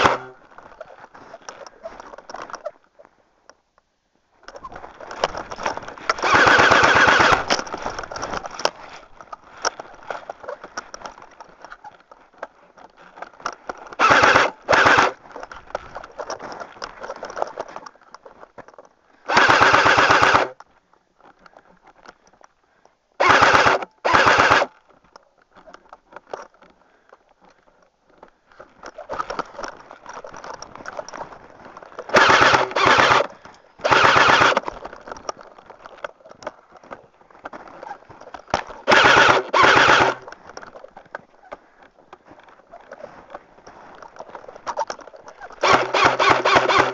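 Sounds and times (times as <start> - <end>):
airsoft gun full-auto bursts: 0.0 - 0.3, 6.2 - 7.5, 14.0 - 15.2, 19.3 - 20.6, 23.2 - 24.7, 32.1 - 34.6, 38.8 - 40.2, 45.6 - 46.9.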